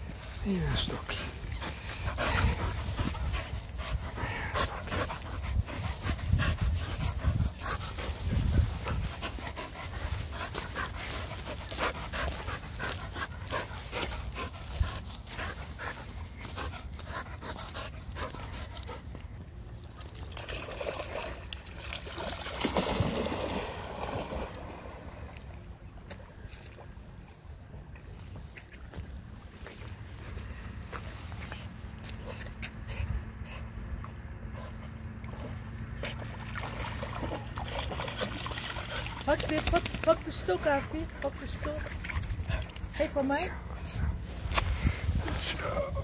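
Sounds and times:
dog panting: 0.1 - 19.5, 37.0 - 46.0
water splashing: 19.7 - 25.6, 35.2 - 42.9.

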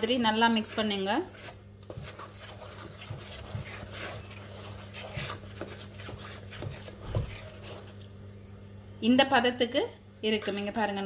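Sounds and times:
hand mixing wet batter: 0.0 - 8.2
steady low hum: 0.0 - 11.0.

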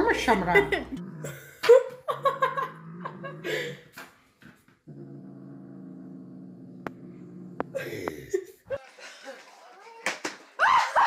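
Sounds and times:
woman laughing and giggling: 0.1 - 3.8.

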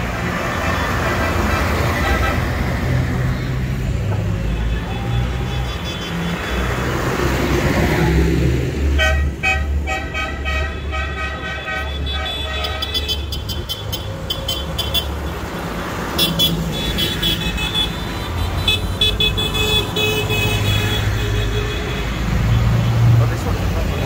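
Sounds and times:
tractor engines driving past: 0.0 - 24.0
horn toots: 8.9 - 15.1.

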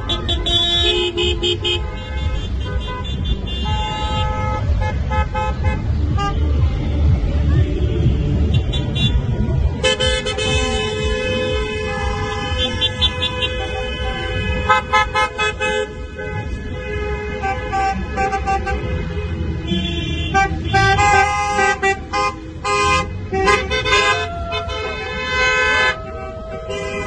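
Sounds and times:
car horns honking: 0.0 - 6.6, 7.6 - 27.0
low rumble of traffic: 0.0 - 27.0.

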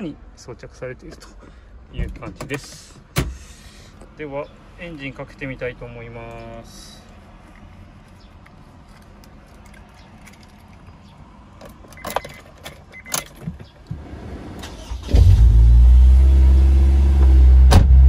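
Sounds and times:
clicks and rattles: 8.4 - 11.0
car engine starting and idling: 11.5 - 18.0.

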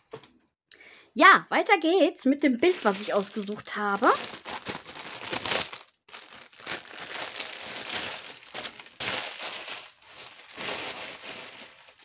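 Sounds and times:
plastic packaging crinkling: 2.6 - 12.0.

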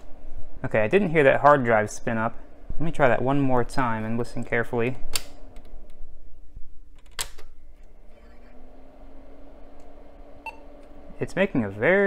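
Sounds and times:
computer motor hum: 7.7 - 12.0.

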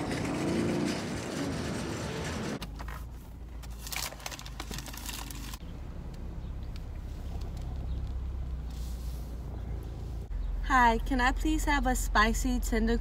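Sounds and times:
car engine rumble from inside: 4.9 - 13.0.

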